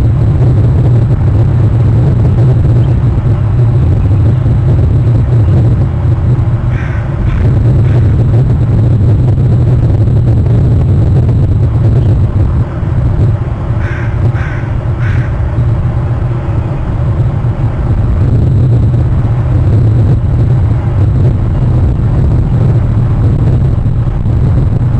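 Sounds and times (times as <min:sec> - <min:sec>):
steady low rumble: 0:00.0 - 0:24.9
crows cawing: 0:06.7 - 0:08.1, 0:13.8 - 0:15.4.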